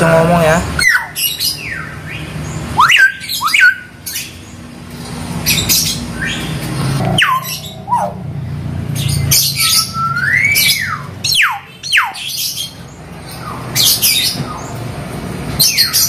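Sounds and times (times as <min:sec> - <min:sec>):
myna whistles and squawks: 0:05.5 - 0:08.2, 0:09.3 - 0:12.5.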